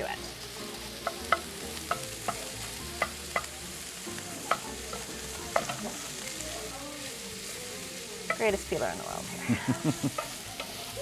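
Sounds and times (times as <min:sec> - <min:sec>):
food sizzling in a frying pan: 0:00.0 - 0:11.0
utensil knocking on pan: 0:01.0 - 0:03.6, 0:04.4 - 0:06.0.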